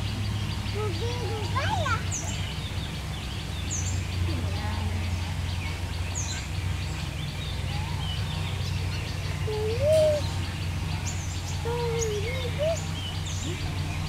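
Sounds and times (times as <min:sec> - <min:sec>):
small birds chirping: 0:00.0 - 0:14.0
low whistled bird call: 0:09.4 - 0:14.0.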